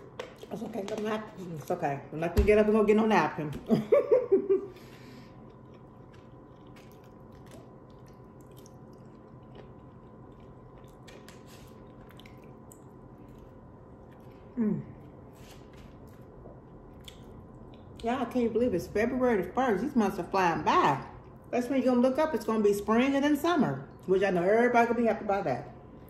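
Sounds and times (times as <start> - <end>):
person chewing food: 4.7 - 18.1.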